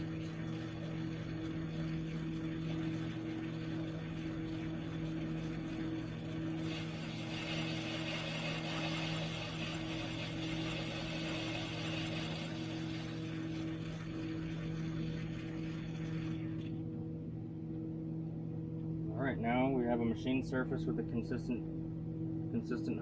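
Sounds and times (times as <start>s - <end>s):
metal lathe motor hum: 0.0s - 17.0s.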